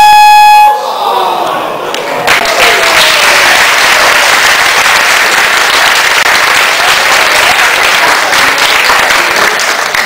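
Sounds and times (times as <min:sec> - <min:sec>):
audience applauding: 0:02.2 - 0:10.0.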